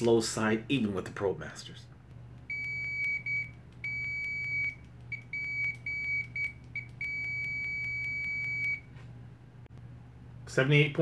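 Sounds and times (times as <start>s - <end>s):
multimeter continuity beeper tone: 2.5s - 8.9s.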